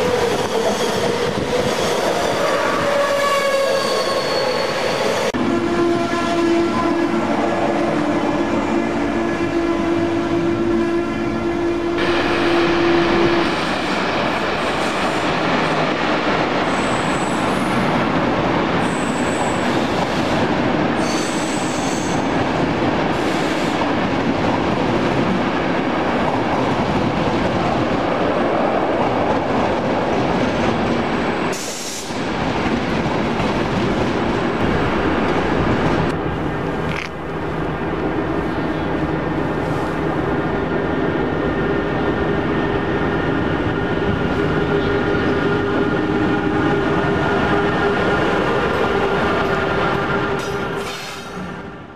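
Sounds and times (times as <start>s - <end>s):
high-pitched wheel squeals: 2.8s - 5.3s.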